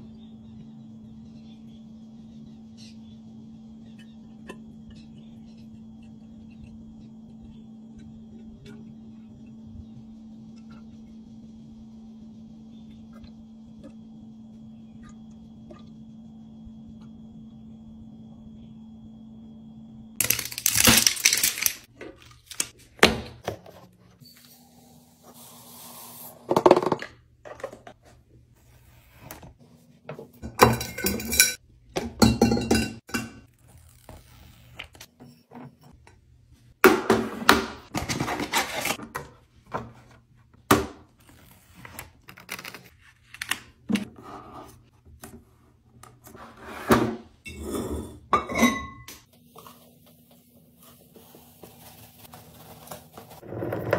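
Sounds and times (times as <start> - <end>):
sticker labels rustling: 20.2 - 22.8
glass lids clinking on countertop: 30.4 - 31.6, 32.2 - 33.4, 47.5 - 49.2.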